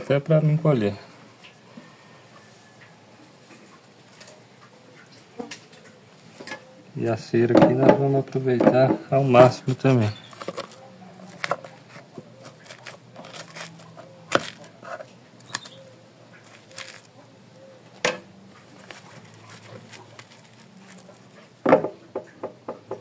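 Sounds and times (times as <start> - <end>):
knocks against wood: 21.6 - 23.0.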